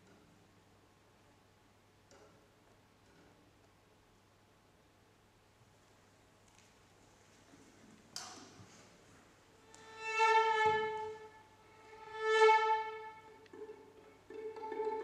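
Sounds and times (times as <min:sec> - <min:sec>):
string instruments sustained notes: 0:09.6 - 0:15.0
violin bowed notes: 0:09.6 - 0:15.0.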